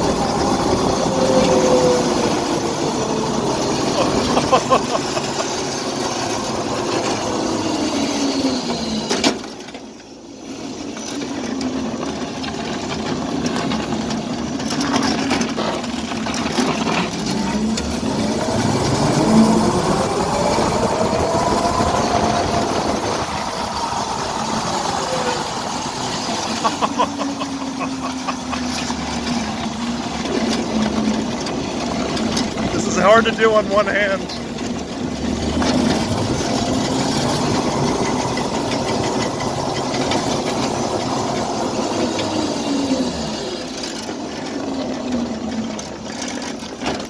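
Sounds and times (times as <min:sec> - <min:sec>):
electric motor whine: 0:00.0 - 0:09.7, 0:16.2 - 0:32.8
road and wind noise: 0:00.0 - 0:47.0.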